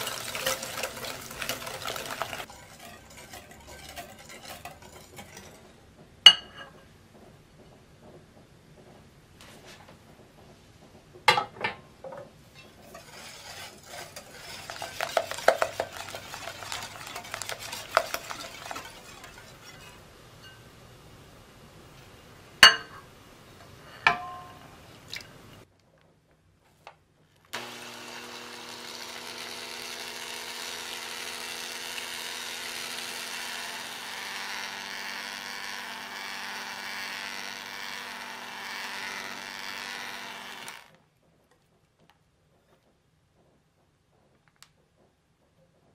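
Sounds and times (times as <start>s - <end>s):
electric hand mixer whirring: 0.0s - 5.2s, 13.2s - 19.8s, 27.6s - 41.0s
stirring in glass bowl: 0.0s - 5.8s, 12.8s - 20.6s.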